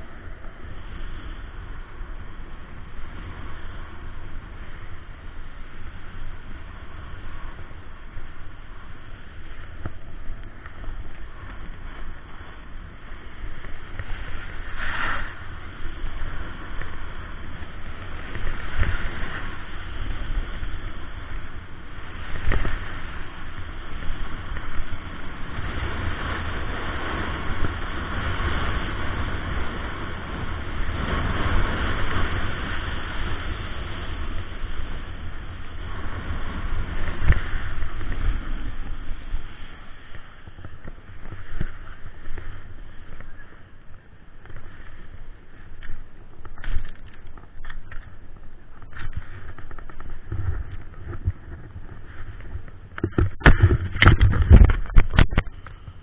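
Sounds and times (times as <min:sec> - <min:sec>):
snowboard scraping on snow: 0:00.0 - 0:43.6
wind buffeting microphone: 0:00.0 - 0:56.0.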